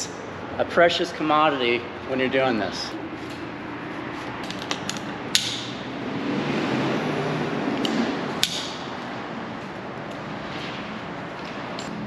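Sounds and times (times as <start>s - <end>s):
carabiner clicks: 7.8s - 8.8s.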